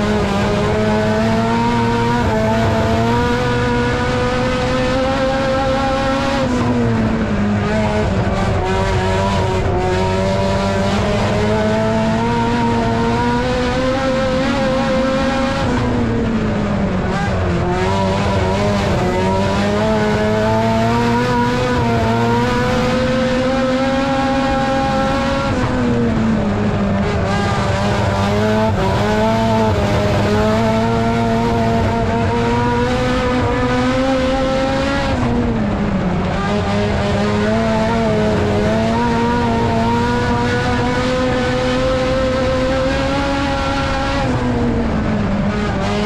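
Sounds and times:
race car engine at speed: 0.0 - 46.0.

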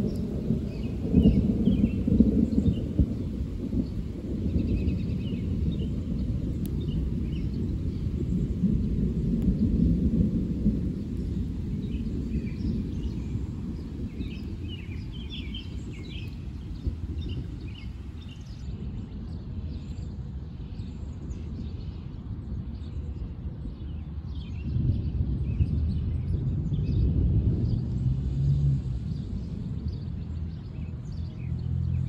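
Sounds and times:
birds chirping: 0.0 - 18.7
distant thunder rumble: 0.0 - 19.4, 24.7 - 30.7
low outdoor rumble: 0.0 - 32.0.

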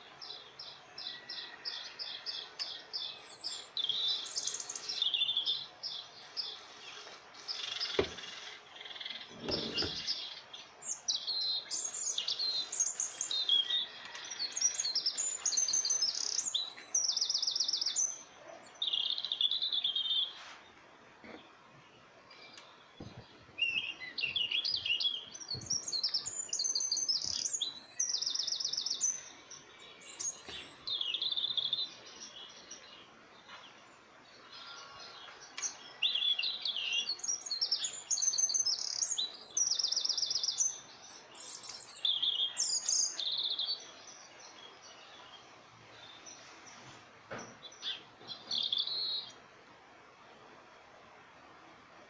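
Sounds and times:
small birds chirping and trilling: 0.0 - 50.2.

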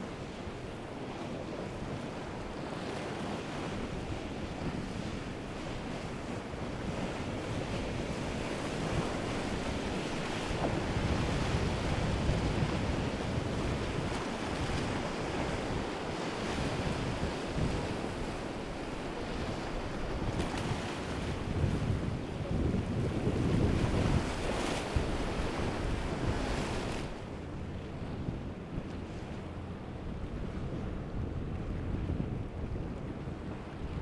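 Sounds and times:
boat wake: 0.0 - 34.0
waves washing: 0.0 - 34.0
wind buffeting microphone: 0.0 - 34.0.

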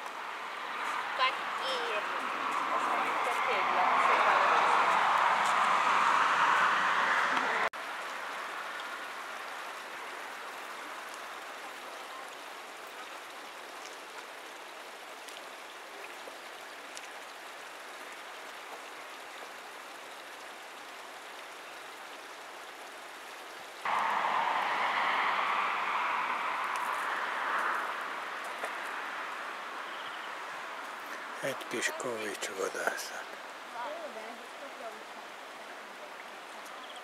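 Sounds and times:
loud water rushing: 0.0 - 11.5, 23.8 - 33.9
river babbling over pebbles: 0.0 - 37.0.

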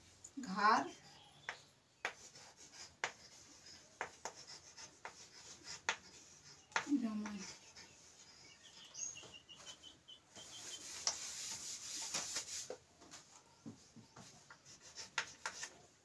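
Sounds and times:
chalk tapping on board: 1.4 - 8.2, 10.3 - 12.8, 13.7 - 15.8
duster wiping chalkboard: 10.3 - 15.8.

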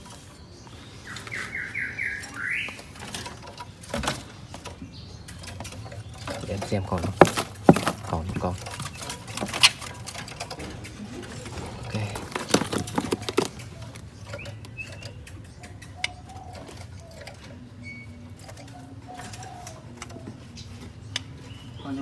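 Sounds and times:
bird cages clattering: 0.0 - 22.0
dove cooing: 9.1 - 20.9.

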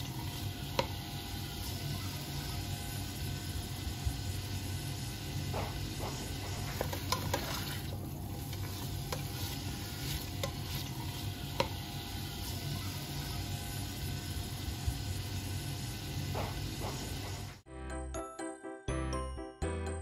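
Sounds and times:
spatula scraping and tapping pot: 0.0 - 1.1, 5.5 - 12.0
food sizzling in oil: 0.0 - 17.6.

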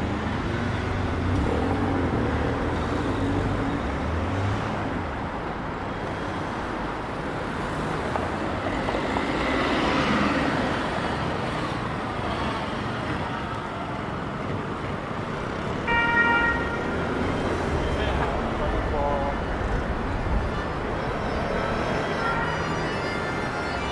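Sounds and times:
street traffic noise: 0.0 - 23.9
car horn beep: 15.8 - 17.1, 22.2 - 23.9.

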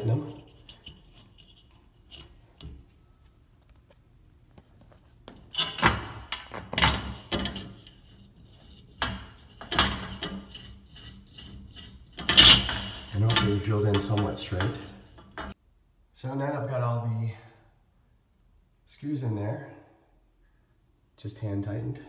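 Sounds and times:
screws scraping on metal rail: 0.0 - 2.8, 5.4 - 15.6.

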